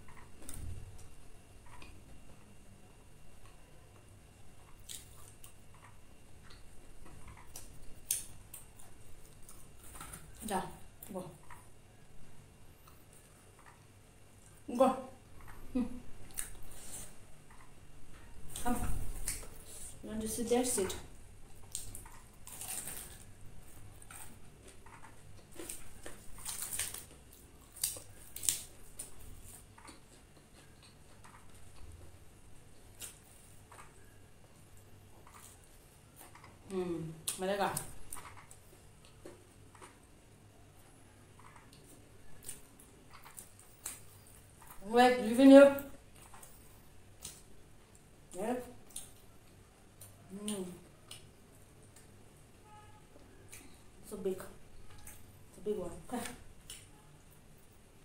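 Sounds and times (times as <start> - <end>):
crispy coating crackling: 18.5 - 31.9.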